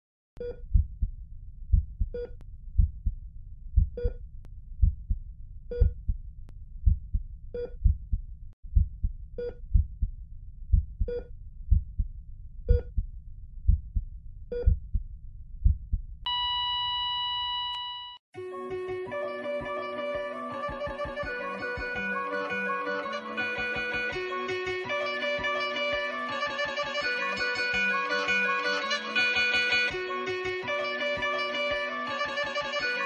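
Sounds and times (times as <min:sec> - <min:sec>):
heartbeat thumps: 0:00.4 - 0:16.3
heart monitor beeps: 0:05.7 - 0:06.0, 0:14.5 - 0:14.8, 0:16.3 - 0:18.2
flatline tone: 0:16.3 - 0:18.2.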